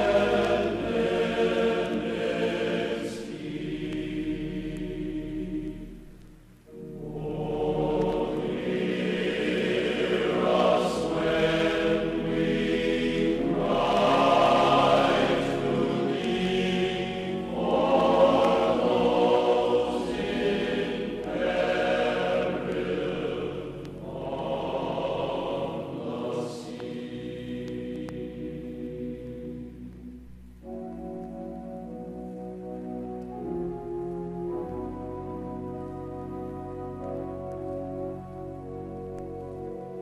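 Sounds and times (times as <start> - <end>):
choir singing: 0.0 - 6.1, 6.7 - 29.8.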